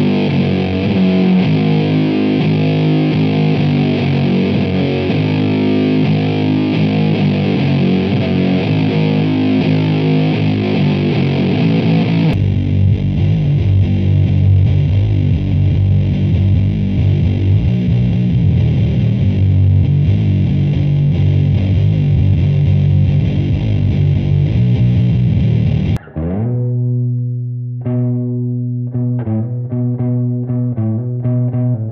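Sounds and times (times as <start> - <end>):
clean guitar chord ringing: 0.0 - 31.8
distorted bass riff: 0.0 - 31.9
fuzz electric guitar: 0.0 - 31.9.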